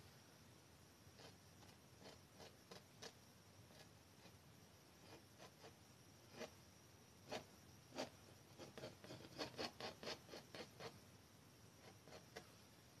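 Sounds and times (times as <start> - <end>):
palette knife scraping paint: 1.2 - 4.4, 5.0 - 6.6, 7.2 - 11.0, 11.8 - 12.5.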